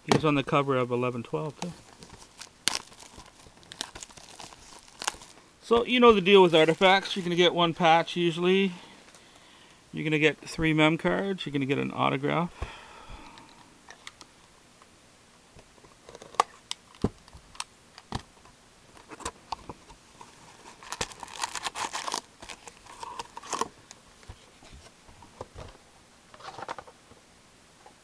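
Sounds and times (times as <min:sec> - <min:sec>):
wrapper crinkling: 0:01.5 - 0:05.4, 0:20.2 - 0:23.8.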